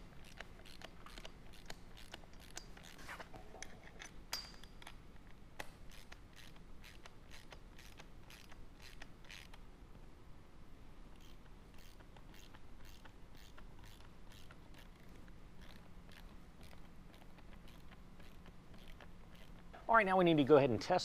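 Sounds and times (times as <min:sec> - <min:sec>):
ratcheting wrench clicking: 0:00.1 - 0:03.0, 0:05.6 - 0:09.6, 0:11.2 - 0:19.6.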